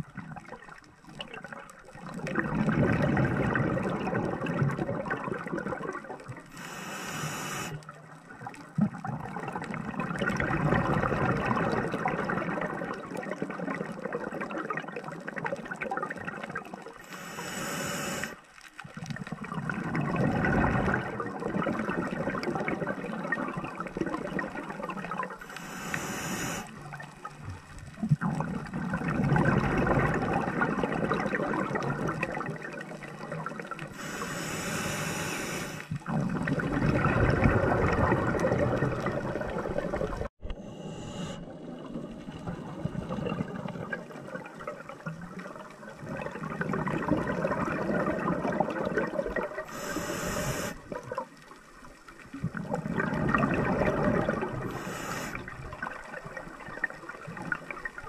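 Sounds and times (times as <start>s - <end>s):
exhaled bubbles underwater: 0.0s - 58.0s
regulator inhalation hiss: 6.5s - 7.8s, 17.0s - 18.4s, 25.4s - 26.8s, 34.0s - 35.9s, 40.6s - 41.5s, 49.7s - 50.8s, 54.7s - 55.5s.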